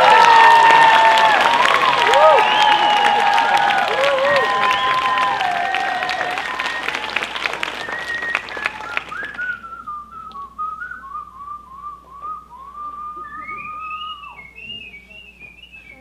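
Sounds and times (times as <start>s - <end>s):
applause: 0.0s - 9.6s
person whistling a tune: 6.1s - 16.0s.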